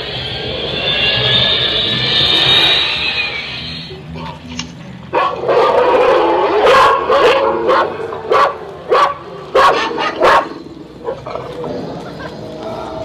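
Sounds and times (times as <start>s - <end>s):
dog barking: 5.1s - 11.2s.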